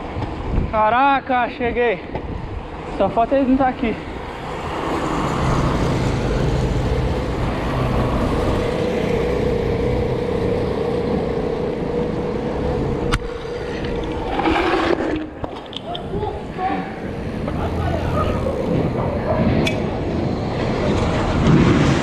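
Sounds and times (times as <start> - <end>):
road and wind rumble: 0.0 - 22.0
motorcycle engine passing: 4.3 - 22.0.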